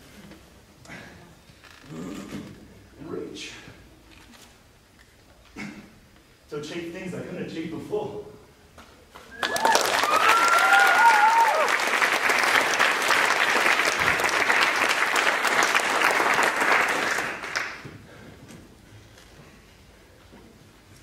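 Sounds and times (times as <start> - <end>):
high cheering calls: 9.3 - 14.4
audience applauding: 9.3 - 18.0.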